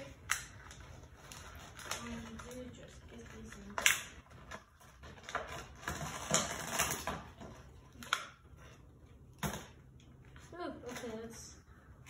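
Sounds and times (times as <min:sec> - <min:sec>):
plastic packaging rustling: 0:00.0 - 0:08.8.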